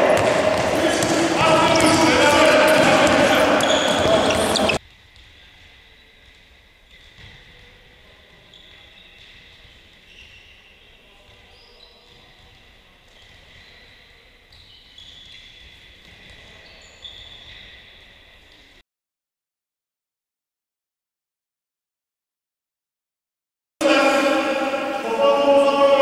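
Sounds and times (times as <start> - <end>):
shoe squeaks on court: 0.1 - 4.8, 8.4 - 18.7.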